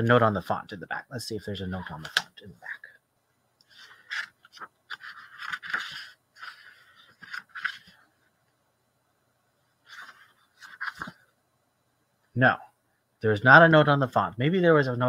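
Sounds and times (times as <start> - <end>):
book pages rustling: 3.7 - 8.0, 9.8 - 11.3.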